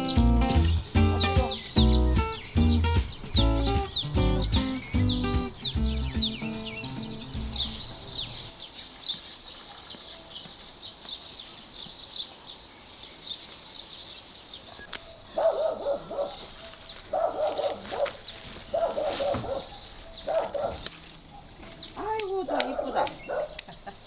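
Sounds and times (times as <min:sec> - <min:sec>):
small birds chirping: 0:00.0 - 0:24.0
dog barking: 0:01.1 - 0:01.6, 0:14.7 - 0:21.6, 0:22.5 - 0:23.6.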